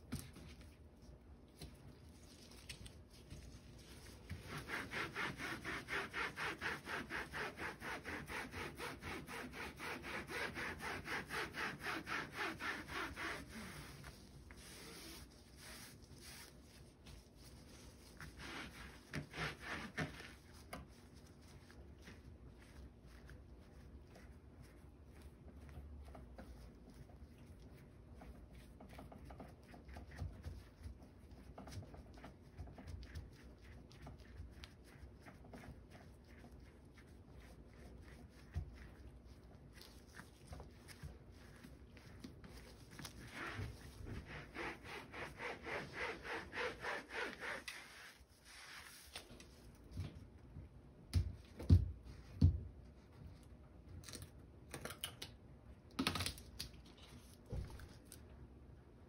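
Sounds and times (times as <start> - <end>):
towel rubbing: 1.6 - 25.3, 37.4 - 49.8.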